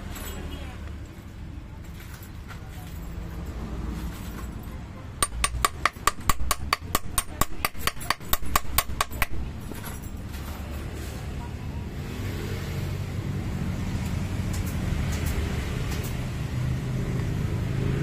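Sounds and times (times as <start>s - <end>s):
light metallic hammer taps: 5.2s - 9.4s.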